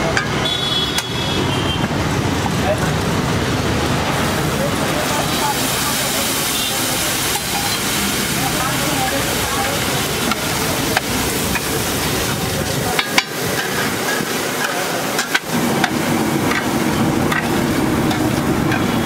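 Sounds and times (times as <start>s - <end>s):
egg sizzling on a griddle: 3.0s - 19.0s
metal spatula scraping and clacking: 12.9s - 16.7s, 17.3s - 19.0s.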